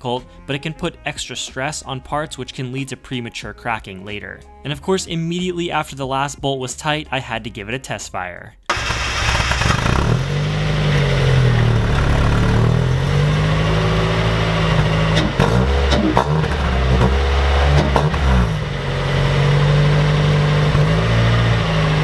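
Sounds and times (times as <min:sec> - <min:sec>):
car engine idling: 0:08.7 - 0:22.0
car engine revving: 0:08.7 - 0:22.0.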